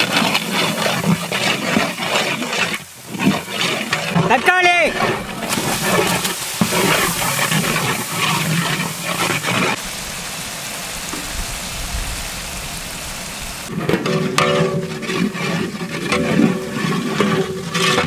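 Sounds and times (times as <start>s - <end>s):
masala sizzling in hot oil: 0.0s - 13.7s.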